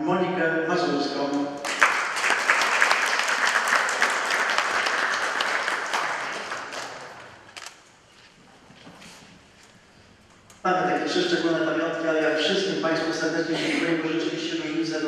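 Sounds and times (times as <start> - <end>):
audience applauding: 1.6 - 7.5.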